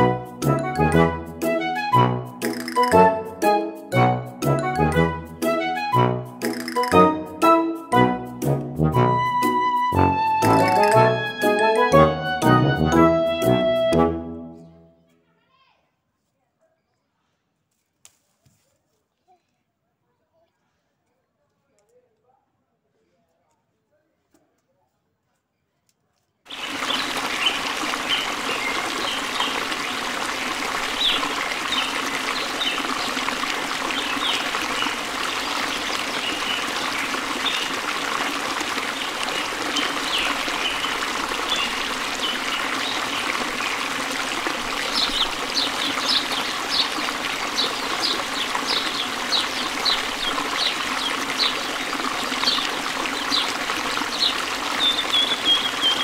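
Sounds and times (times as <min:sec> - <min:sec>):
water trickling: 0:10.3 - 0:12.1, 0:26.5 - 0:56.0.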